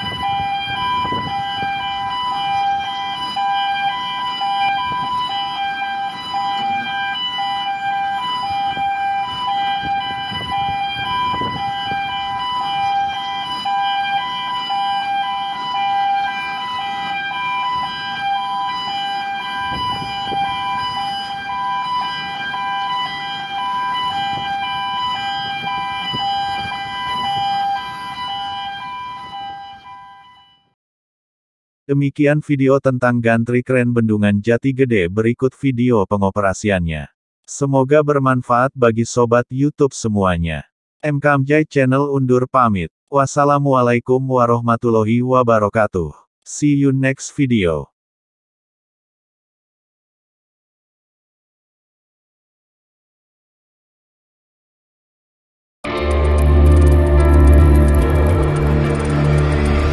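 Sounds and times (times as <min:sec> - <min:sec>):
two-tone warning siren: 0:00.0 - 0:30.8, 0:55.8 - 0:59.9
low rumble: 0:55.9 - 0:59.9.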